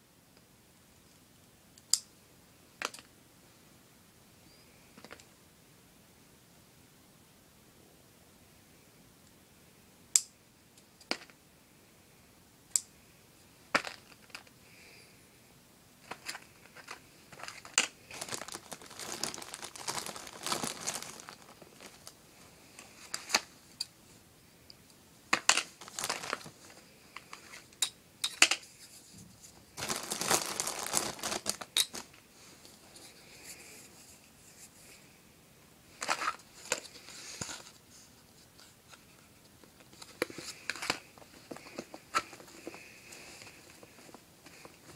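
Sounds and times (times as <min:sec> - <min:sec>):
material crinkling and rustling: 0:16.0 - 0:23.7, 0:25.3 - 0:27.8, 0:28.4 - 0:34.8, 0:36.0 - 0:44.9.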